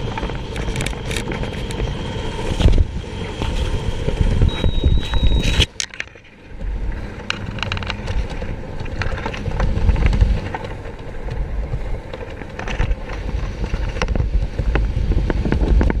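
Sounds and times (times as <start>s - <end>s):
wind buffeting microphone: 0.0s - 16.0s
fabric and gear clicks and rustles: 5.0s - 16.0s.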